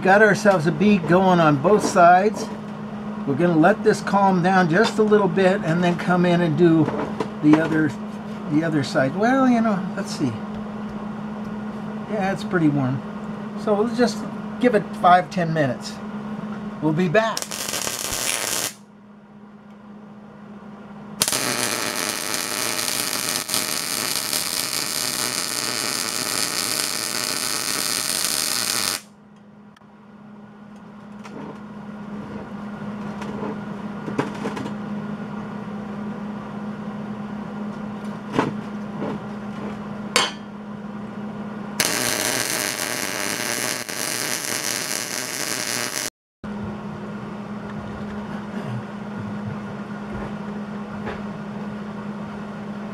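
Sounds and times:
steady low hum: 0.0s - 52.9s
welder arc crackling: 17.3s - 18.8s, 21.2s - 29.1s, 41.8s - 46.1s.

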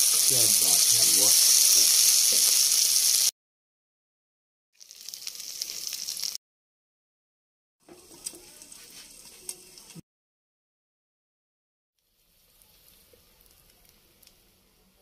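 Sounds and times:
oil sizzling in frying pan: 0.0s - 3.3s, 4.8s - 6.4s, 12.0s - 15.0s.

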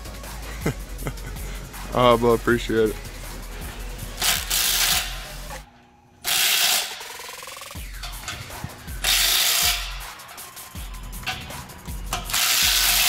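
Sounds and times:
impact driver hammering: 12.1s - 13.0s.

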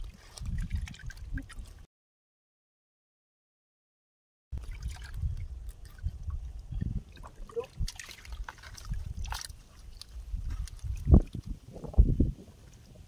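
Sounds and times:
small wet splashes: 0.0s - 1.9s, 4.6s - 11.6s.

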